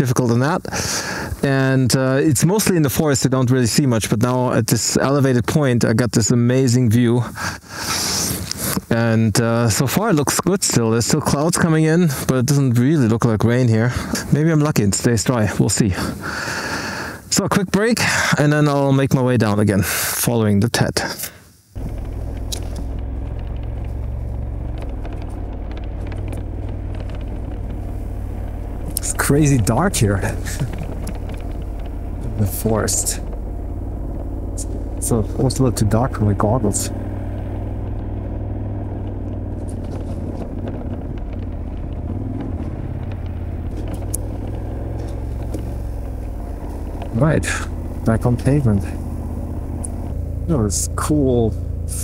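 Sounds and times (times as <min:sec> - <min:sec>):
motorcycle engine rumbling: 0:00.0 - 0:17.4, 0:21.7 - 0:52.0
faint ticks: 0:21.2 - 0:29.1, 0:30.5 - 0:32.3, 0:38.7 - 0:47.1, 0:48.8 - 0:50.2.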